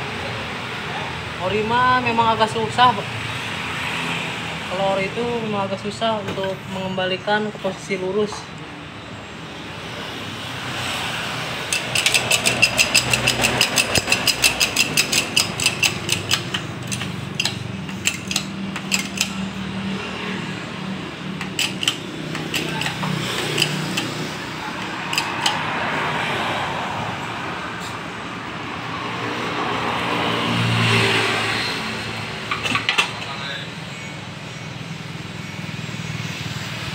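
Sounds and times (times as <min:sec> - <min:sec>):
rapid metallic clicking: 0:11.7 - 0:19.5, 0:21.4 - 0:25.6.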